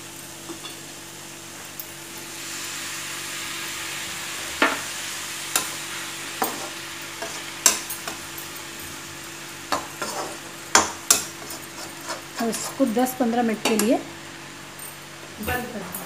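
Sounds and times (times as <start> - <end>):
vegetables sizzling in a pan: 0.0 - 15.4
metal spoon scraping a pan: 6.4 - 8.2, 9.7 - 13.0.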